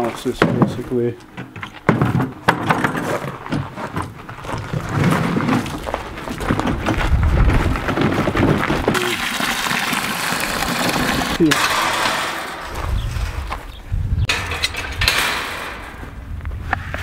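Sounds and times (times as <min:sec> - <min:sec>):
cart rattling over gravel: 0:01.7 - 0:09.4, 0:10.1 - 0:16.2
footsteps crunching on gravel: 0:03.0 - 0:09.0.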